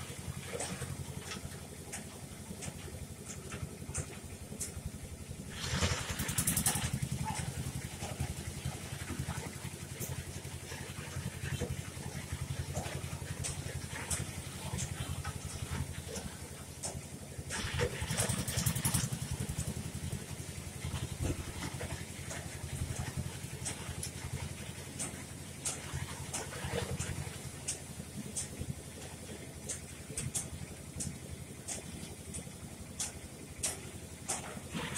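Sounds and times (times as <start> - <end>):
engine idling: 0.0 - 34.9.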